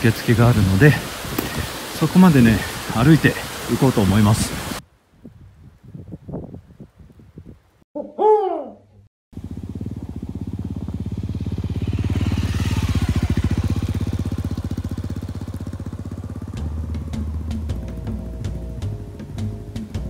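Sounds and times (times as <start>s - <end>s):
motorcycle engine passing: 9.4s - 19.1s.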